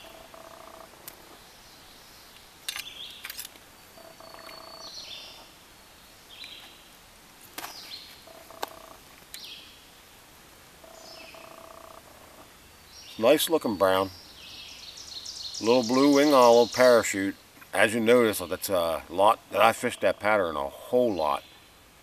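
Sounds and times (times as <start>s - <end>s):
bird singing: 0.0s - 5.6s, 6.3s - 6.8s, 10.8s - 21.8s
stream hiss: 0.9s - 22.0s.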